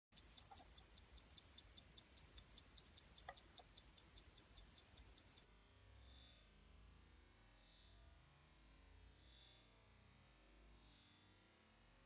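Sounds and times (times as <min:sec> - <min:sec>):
pocket watch ticking: 0:00.1 - 0:05.5.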